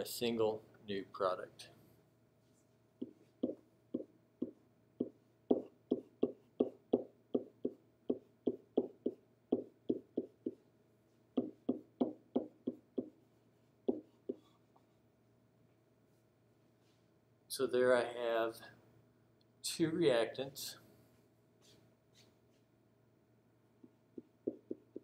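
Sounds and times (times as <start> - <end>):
pen tapping on whiteboard: 3.0 - 10.6, 11.4 - 13.2, 13.9 - 14.5, 23.8 - 25.0.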